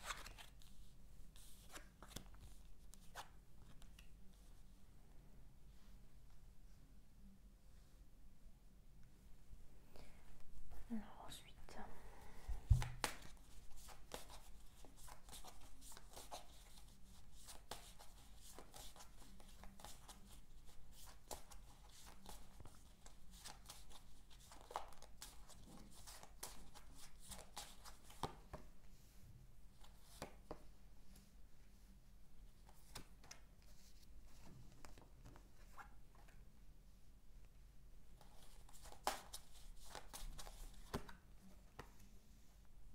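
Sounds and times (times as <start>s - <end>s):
playing cards shuffling: 0.0s - 0.7s, 1.4s - 4.0s, 38.2s - 41.2s.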